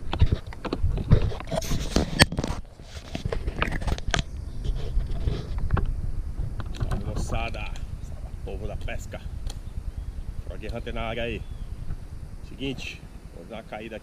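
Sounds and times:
camera handling scrapes and knocks: 0:00.0 - 0:05.9
low rumble: 0:03.4 - 0:14.0.

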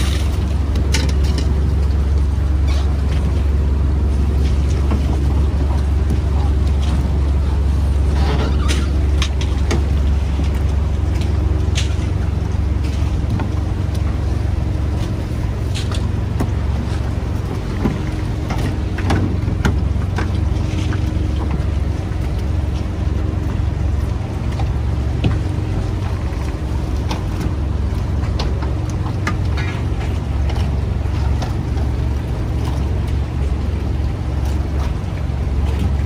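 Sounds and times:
boat engine droning: 0:00.0 - 0:36.0.

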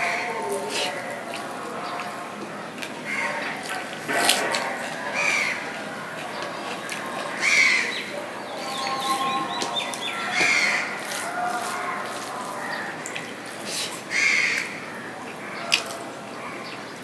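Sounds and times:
wet chewing and lip-smacking: 0:00.0 - 0:16.1
bird calling: 0:05.0 - 0:17.0.

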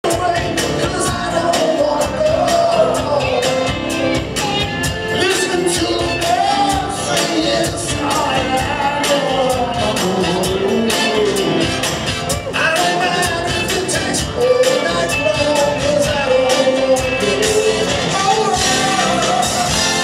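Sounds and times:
drums keeping steady beat: 0:00.0 - 0:20.0
live rock band with horns: 0:00.0 - 0:20.0.

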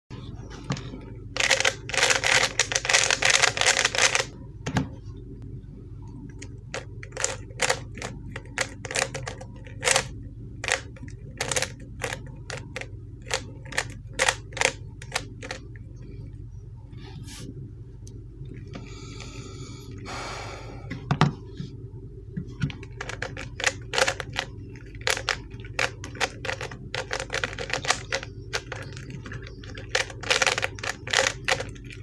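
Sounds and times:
plastic puzzle cube turning: 0:01.4 - 0:04.3, 0:22.8 - 0:32.0.

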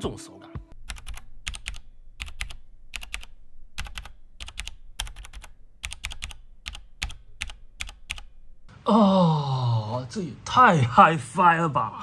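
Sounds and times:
typing on mechanical keyboard: 0:00.9 - 0:08.3.

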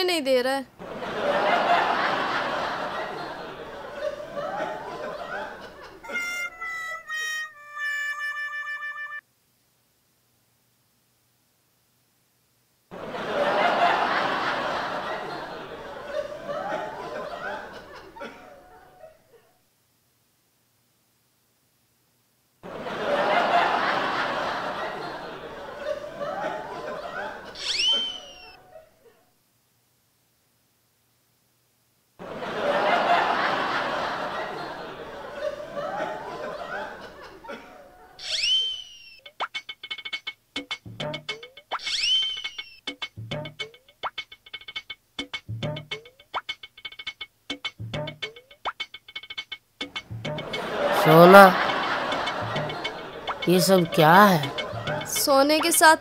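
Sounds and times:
group laughter: 0:00.8 - 0:06.2, 0:12.9 - 0:19.5, 0:22.6 - 0:27.6, 0:32.2 - 0:38.2, 0:50.4 - 0:55.2
sliding whistle sound effect: 0:06.1 - 0:09.2, 0:27.6 - 0:28.6, 0:38.2 - 0:39.4, 0:41.7 - 0:42.9.

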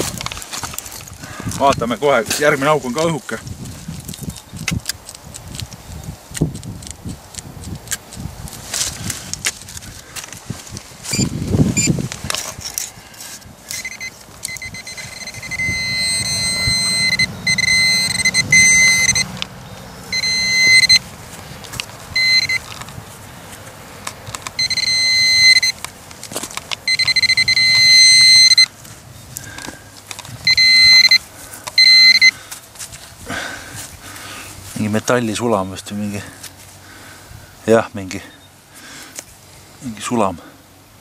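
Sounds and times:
clicks and scrapes of soil: 0:00.0 - 0:15.5, 0:21.0 - 0:24.8, 0:25.6 - 0:27.5, 0:28.6 - 0:36.8
pinpointer high-pitched buzz: 0:13.7 - 0:19.4, 0:20.1 - 0:21.1, 0:22.2 - 0:22.7, 0:24.6 - 0:25.8, 0:26.9 - 0:28.7, 0:30.4 - 0:32.4.

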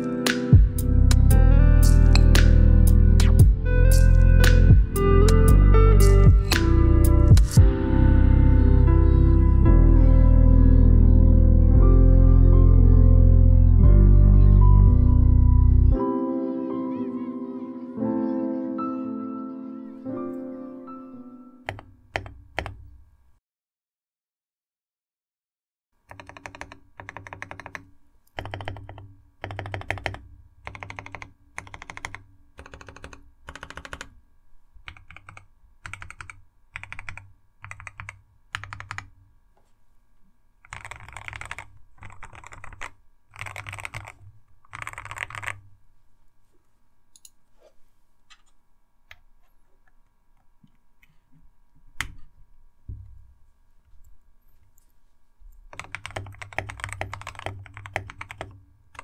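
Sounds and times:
mechanical keyboard typing: 0:21.6 - 0:22.8, 0:26.1 - 0:34.2, 0:34.9 - 0:39.1, 0:40.6 - 0:45.6, 0:55.7 - 0:59.0.

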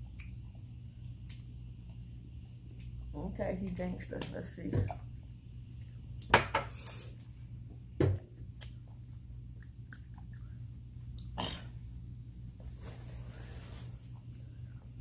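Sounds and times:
steady low hum: 0:00.0 - 0:15.0
chewing and biting food: 0:08.5 - 0:11.3.

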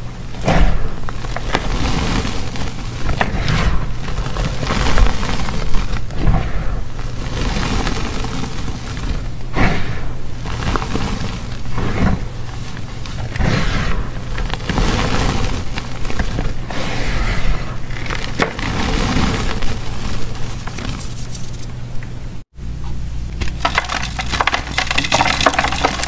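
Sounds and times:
chalk crunching: 0:00.0 - 0:21.8, 0:23.5 - 0:26.0
powdery rustling: 0:00.0 - 0:21.9, 0:23.4 - 0:26.0.

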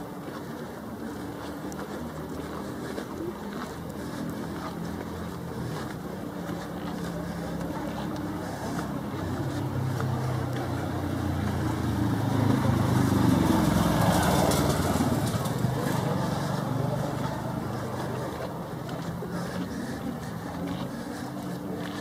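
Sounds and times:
vehicle engine passing: 0:00.0 - 0:22.0.

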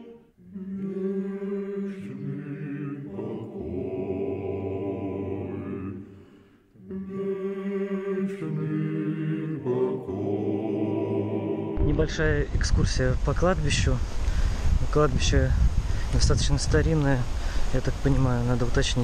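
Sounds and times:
church choir chanting: 0:00.0 - 0:12.2.

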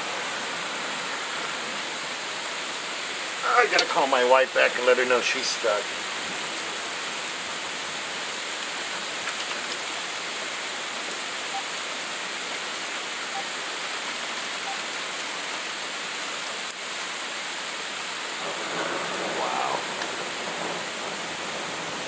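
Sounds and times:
heavy sleet falling: 0:19.3 - 0:20.4.

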